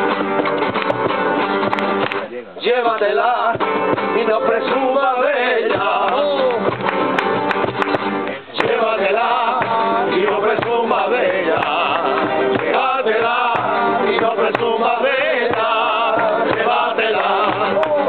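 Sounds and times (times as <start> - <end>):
acoustic guitars: 0.0 - 18.0
men singing together: 2.6 - 6.8, 8.3 - 18.0.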